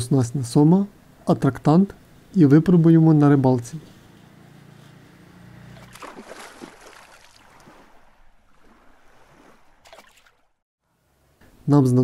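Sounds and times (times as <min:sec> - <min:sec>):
water waves splashing: 0:05.6 - 0:10.6.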